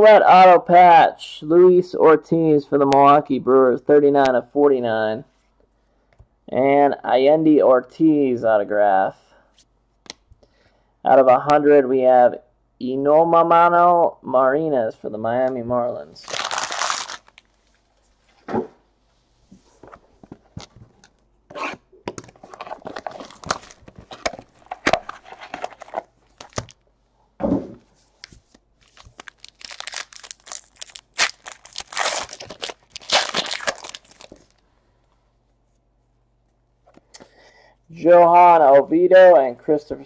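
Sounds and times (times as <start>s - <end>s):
foil wrapper tearing and crinkling: 16.2s - 17.5s, 22.4s - 26.8s, 28.8s - 34.6s
cards clicking and rustling: 22.1s - 26.8s.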